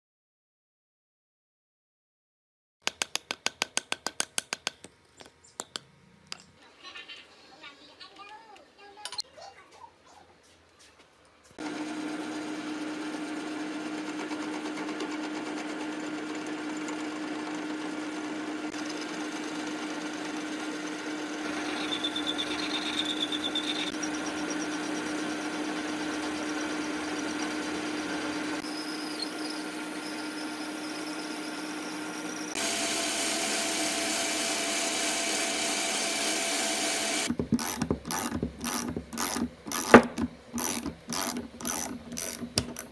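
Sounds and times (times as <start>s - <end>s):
metal lathe running: 11.6s - 42.9s.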